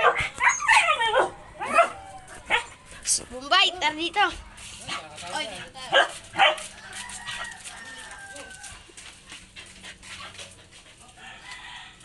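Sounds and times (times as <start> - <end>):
dog barking: 0.0 - 2.7, 5.9 - 6.7
rooster crowing: 6.7 - 8.8, 11.2 - 12.0.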